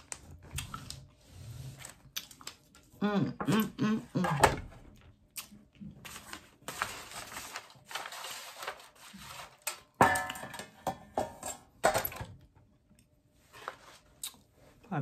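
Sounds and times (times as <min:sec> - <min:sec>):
popcorn rustling: 0:04.9 - 0:10.0.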